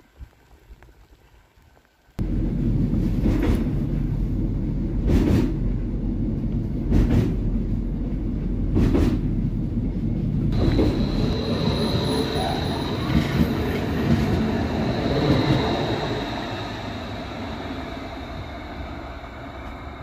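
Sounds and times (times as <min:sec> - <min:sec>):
train cab rumble: 0:02.2 - 0:20.0
air rushes: 0:10.4 - 0:20.0
high steady whine: 0:10.5 - 0:20.0.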